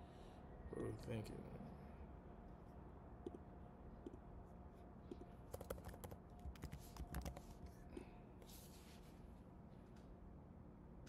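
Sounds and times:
keyboard typing: 5.5 - 7.4.

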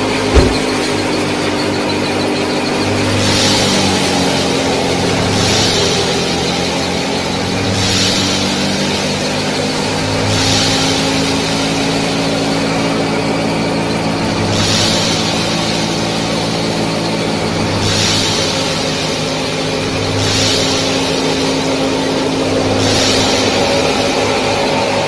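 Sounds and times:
swelling hiss: 14.5 - 25.0.

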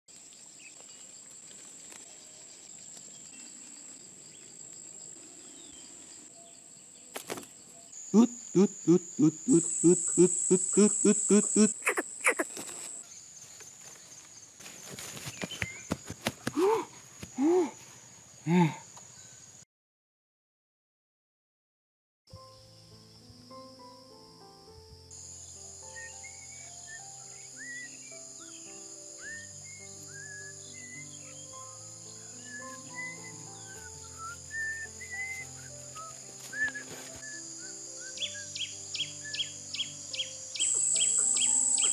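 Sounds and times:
insect drone: 0.1 - 19.6, 22.3 - 41.9
bird deep hooting call: 8.2 - 12.6.

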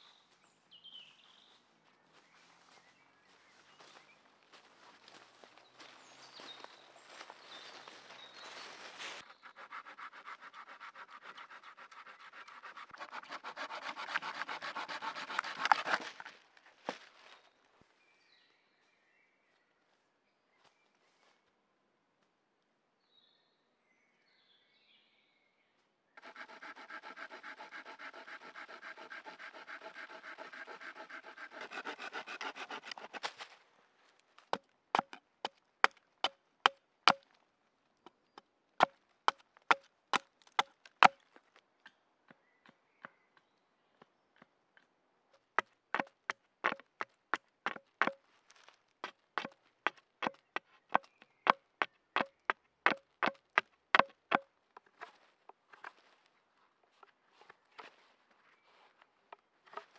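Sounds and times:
hand saw cutting wood: 9.2 - 16.3, 26.2 - 33.5, 35.0 - 35.2, 59.7 - 59.9
hatchet chopping wood: 9.7 - 16.2, 26.2 - 33.4, 34.5 - 37.4, 38.8 - 42.0, 45.6 - 47.1, 47.7 - 48.2, 52.2 - 55.2.

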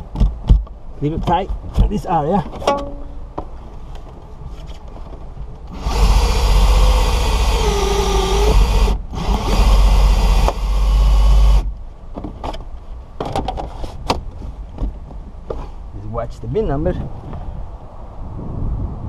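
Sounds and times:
cordless drill running under load: 5.7 - 11.6.

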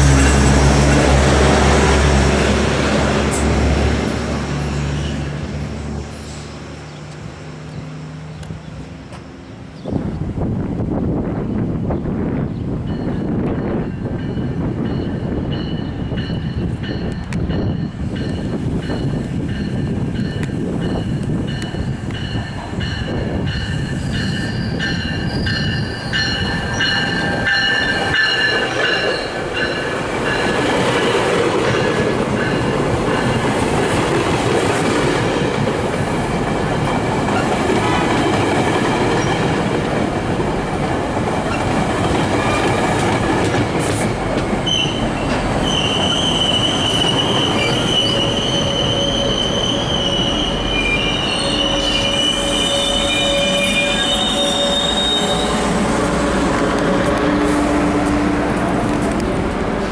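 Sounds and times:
train coaches rumbling past: 0.0 - 59.9
high-pitched train squealing: 12.9 - 34.0, 44.6 - 58.3.

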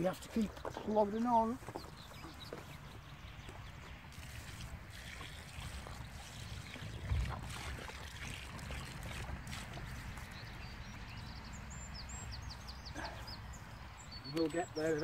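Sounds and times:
water pouring into soil: 4.1 - 10.6.

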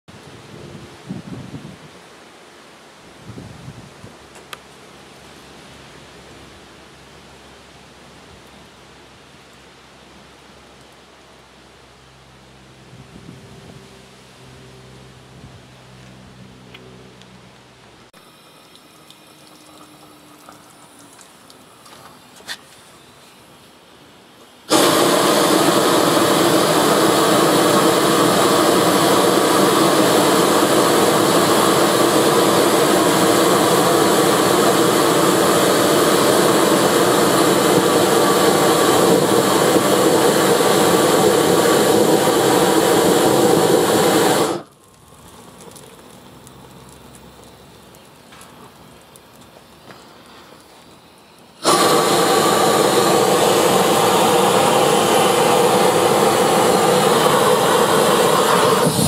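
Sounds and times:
blowtorch flame rushing: 24.6 - 45.9, 51.5 - 59.0.

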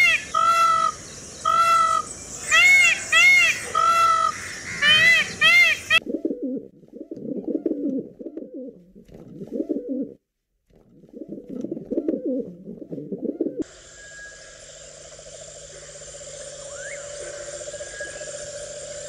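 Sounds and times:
pigeons cooing: 3.4 - 10.2, 10.9 - 13.7
background hiss and hum: 11.0 - 19.0.

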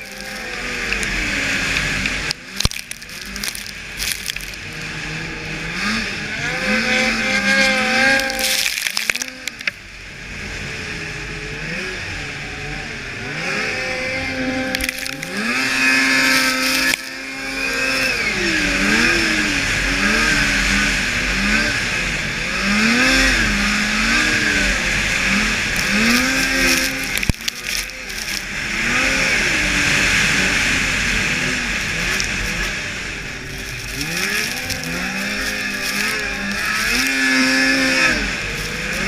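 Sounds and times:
snowmobile engine revving: 0.0 - 39.0
track noise: 25.0 - 39.0.

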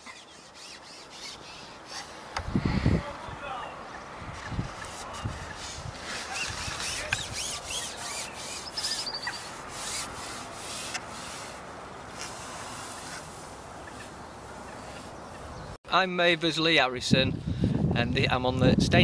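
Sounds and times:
scratchy rubbing and rustling: 0.0 - 2.3, 4.6 - 15.2
bird chirping and trilling: 6.4 - 10.0.

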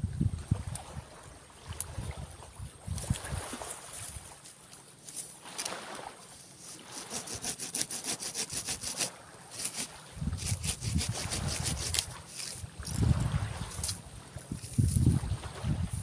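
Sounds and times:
hand saw cutting wood: 6.4 - 12.6.

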